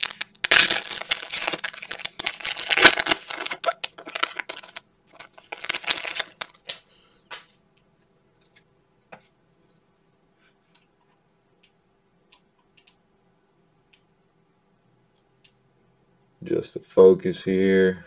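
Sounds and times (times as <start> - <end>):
foil wrapper crinkling and tearing: 0.0 - 6.8.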